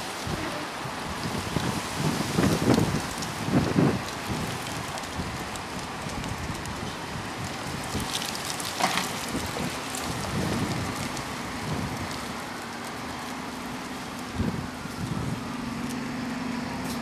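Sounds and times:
bus engine hum: 0.0 - 2.8, 8.6 - 17.0
constant hiss: 0.0 - 17.0.

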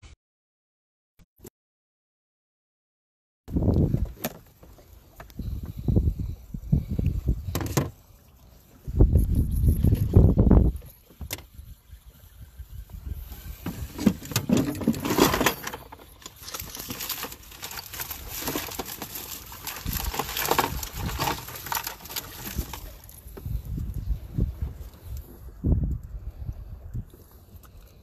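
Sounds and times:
low rumble on microphone: 5.4 - 8.1, 23.3 - 27.6.

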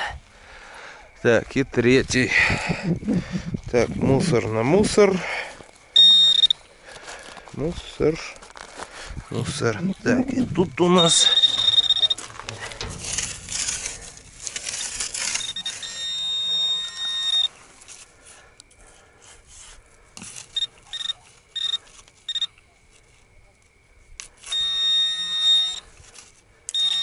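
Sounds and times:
metal detector beeping: 5.9 - 6.6, 10.7 - 17.6, 20.5 - 22.6, 24.4 - 25.9, 26.7 - 27.0
sand rustling: 7.6 - 22.4.

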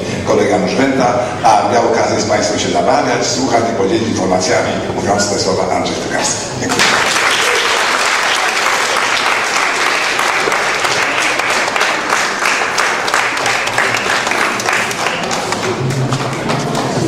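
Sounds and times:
audience applauding: 6.7 - 17.0.

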